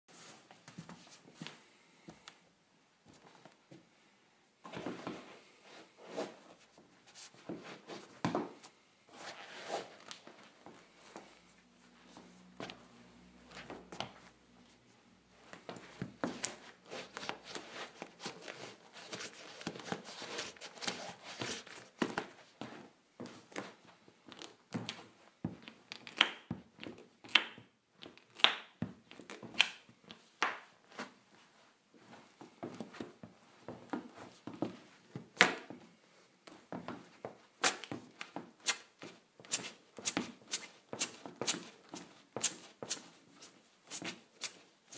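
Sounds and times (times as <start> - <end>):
sneakers scuffing on hardwood floor: 4.6 - 14.8, 30.5 - 35.8, 36.5 - 44.7
feet rustling into sneakers: 4.6 - 25.6.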